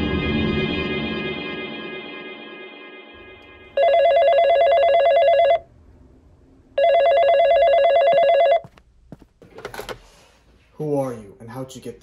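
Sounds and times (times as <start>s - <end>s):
cordless phone ringing: 3.3s - 5.6s, 6.8s - 8.6s.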